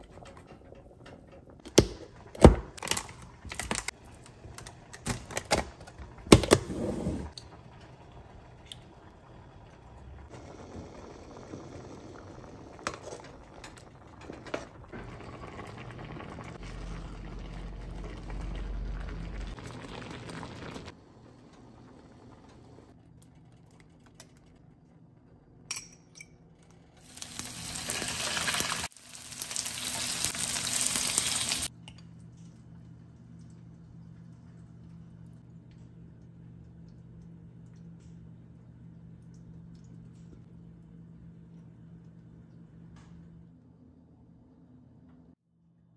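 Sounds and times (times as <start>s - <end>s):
pot of rice bubbling: 7.3s - 23.0s.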